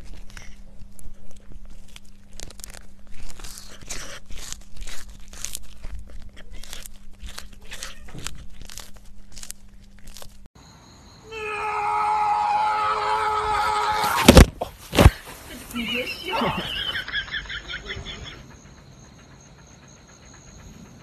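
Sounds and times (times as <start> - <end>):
cat crunching food: 0.0 - 10.5.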